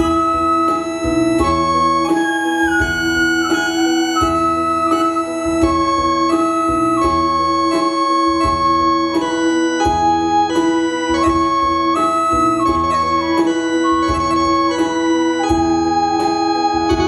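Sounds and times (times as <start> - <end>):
low drum beat: 0.0 - 7.8
keyboard melody: 0.0 - 17.0.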